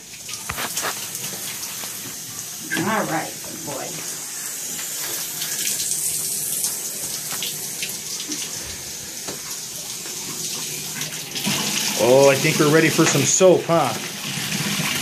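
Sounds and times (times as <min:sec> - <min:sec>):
shower sprayer water hissing: 0:00.0 - 0:15.0.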